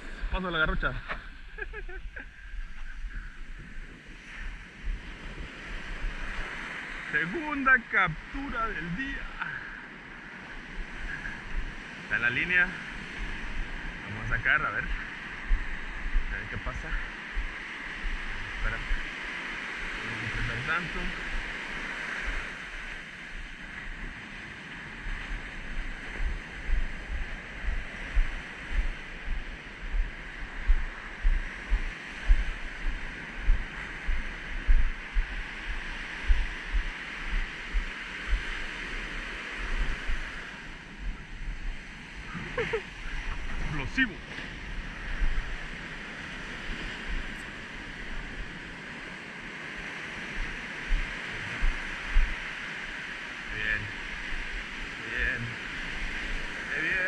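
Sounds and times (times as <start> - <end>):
surf washing onto sandy beach: 0.0 - 57.0
wind on microphone: 0.0 - 57.0
low thumps: 25.6 - 38.5.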